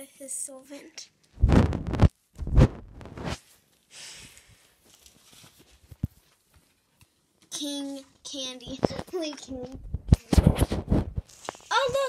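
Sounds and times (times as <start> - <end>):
phone microphone handling noise: 1.4 - 3.4, 8.7 - 12.0
faint rustling: 2.7 - 6.9.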